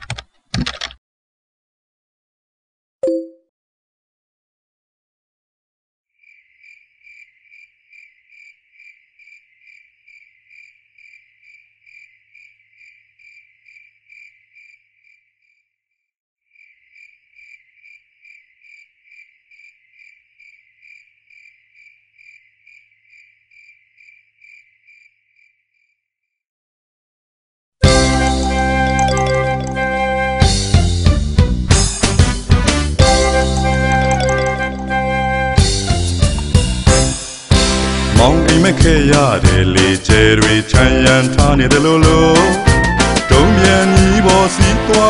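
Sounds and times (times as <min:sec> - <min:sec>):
insect chirping: 0:06.2 - 0:15.7, 0:16.5 - 0:26.4.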